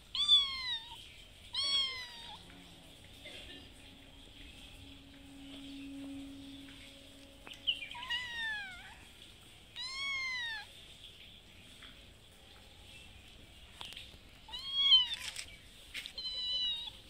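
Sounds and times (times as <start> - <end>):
cat meowing: 0.0 - 2.7, 7.7 - 9.1, 9.7 - 10.8, 14.5 - 15.4, 16.1 - 17.0.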